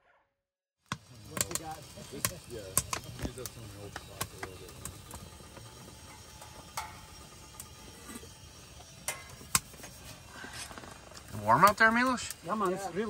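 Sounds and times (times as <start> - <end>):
sharp clicks and knocks: 0.9 - 5.2.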